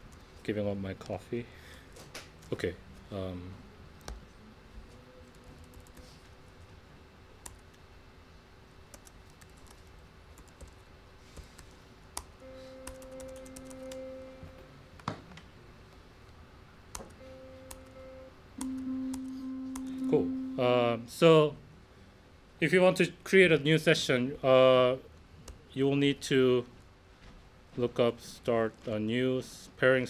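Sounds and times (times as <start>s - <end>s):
laptop keyboard typing: 5.2s - 6.1s, 7.4s - 7.8s, 8.9s - 10.8s, 11.4s - 14.1s, 16.9s - 18.0s, 18.6s - 20.1s
synth note through speakers: 17.2s - 20.8s.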